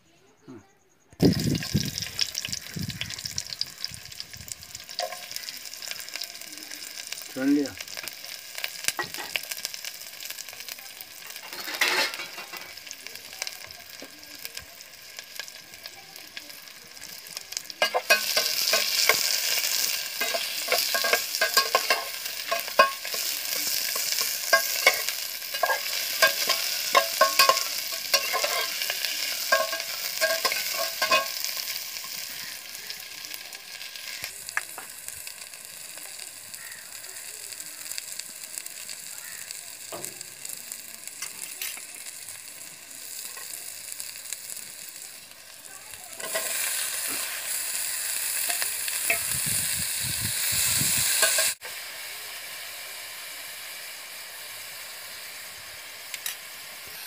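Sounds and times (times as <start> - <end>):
vegetables sizzling in hot oil: 1.2 - 57.0
metal spatula scraping pan: 11.4 - 12.6, 17.8 - 31.6.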